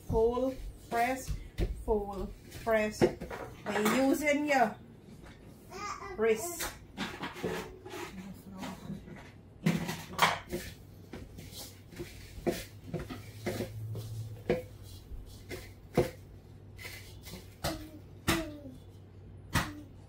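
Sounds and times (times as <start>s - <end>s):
dough being kneaded by hand: 0.0s - 3.3s, 10.4s - 20.0s.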